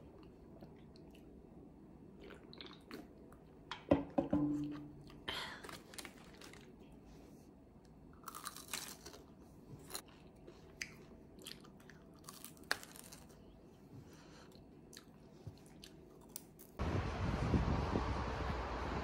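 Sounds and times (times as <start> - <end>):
person chewing crunchy food: 8.1 - 16.8.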